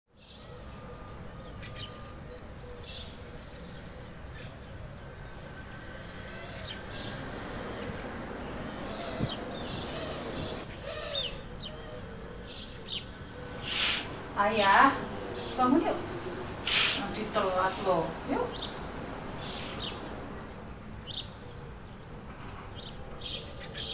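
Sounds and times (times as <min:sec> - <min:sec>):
birds chirping and cooing: 0:00.2 - 0:23.9
steady background hiss: 0:02.9 - 0:21.8.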